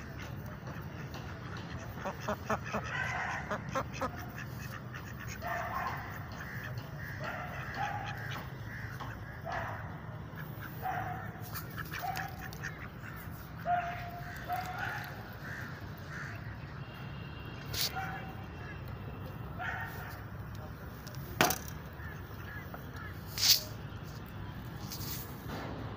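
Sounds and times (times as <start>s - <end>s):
ducks quacking: 0.0s - 16.9s, 21.7s - 23.8s.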